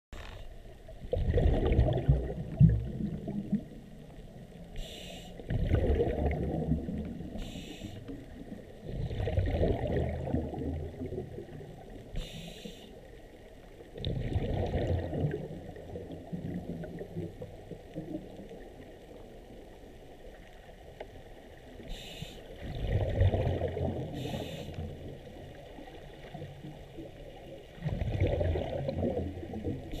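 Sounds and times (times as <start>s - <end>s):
exhaled bubbles rumbling: 0.6s - 4.7s, 5.4s - 12.1s, 13.1s - 21.9s, 22.5s - 30.0s
regulator inhale hiss: 4.7s - 5.5s, 7.3s - 8.2s, 12.1s - 13.1s, 21.8s - 22.6s, 24.1s - 24.9s.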